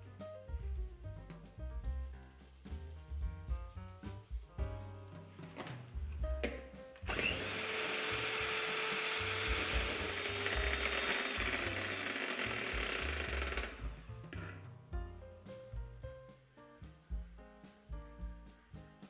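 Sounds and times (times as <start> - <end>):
background music: 0.0 - 19.0
electric hand mixer whisking: 7.0 - 14.0.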